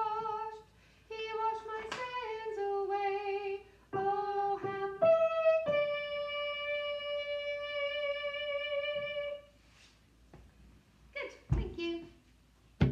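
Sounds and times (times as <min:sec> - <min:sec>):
woman singing soprano: 0:00.0 - 0:09.5.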